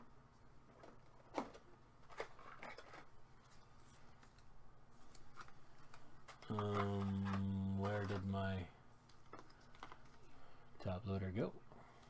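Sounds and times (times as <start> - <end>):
card rustling: 0.8 - 10.4
soft clicks of card handling: 3.4 - 8.3.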